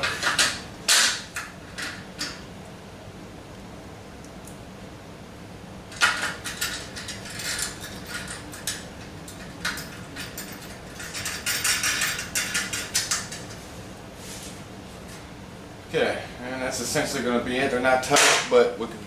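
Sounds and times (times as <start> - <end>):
metal clinking and scraping: 6.0 - 13.6.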